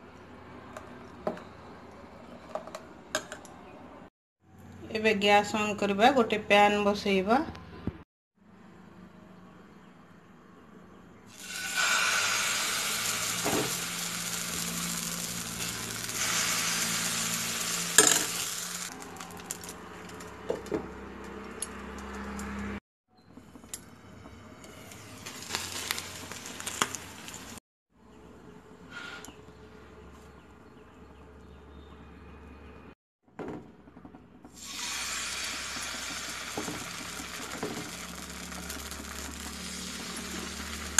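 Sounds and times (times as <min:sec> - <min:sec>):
batter sizzling in a pan: 0:11.3 - 0:19.7, 0:25.2 - 0:27.6, 0:34.6 - 0:40.9.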